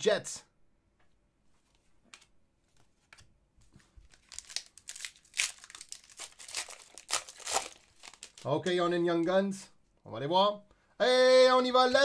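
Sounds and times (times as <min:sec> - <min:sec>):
plastic crinkling: 0:03.7 - 0:08.5.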